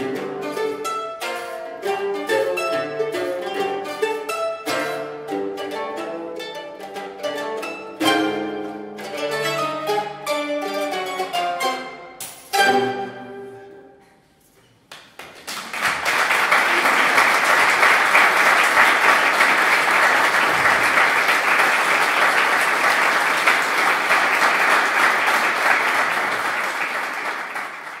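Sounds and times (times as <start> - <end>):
mandolin quartet chord ringing: 0.0 - 13.9
audience applause: 15.1 - 28.0.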